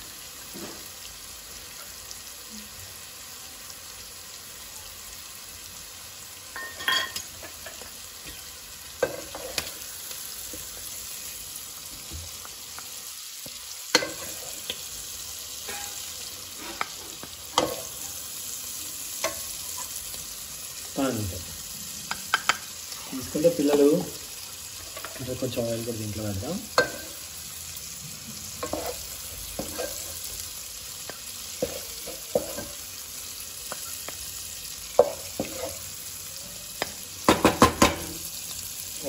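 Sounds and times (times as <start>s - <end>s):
prawns sizzling in hot oil: 0.0s - 39.0s
wooden spatula scraping pan: 28.6s - 30.3s, 31.5s - 32.8s, 35.0s - 35.9s.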